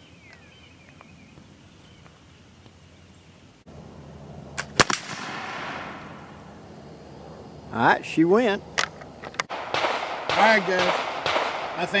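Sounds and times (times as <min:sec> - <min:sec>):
shotgun shot: 0:04.6 - 0:06.2, 0:09.5 - 0:12.0.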